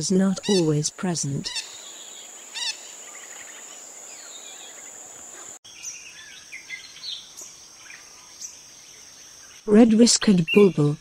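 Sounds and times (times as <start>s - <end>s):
insect drone: 0.0s - 9.7s.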